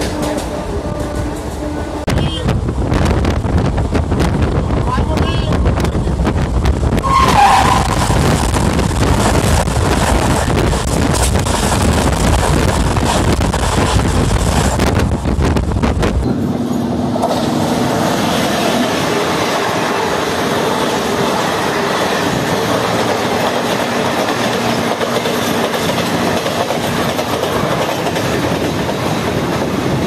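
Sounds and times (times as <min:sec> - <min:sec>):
passing train coaches rattling: 0:00.0 - 0:30.0
rumble of train wheels: 0:00.0 - 0:30.0
locomotive horn: 0:07.0 - 0:08.4.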